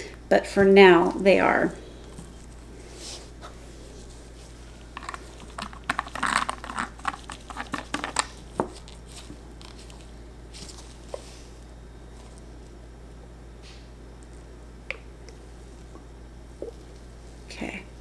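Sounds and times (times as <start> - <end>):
faint steady hum: 0.0 - 18.0
crinkling and clicking handling noise: 2.0 - 12.8.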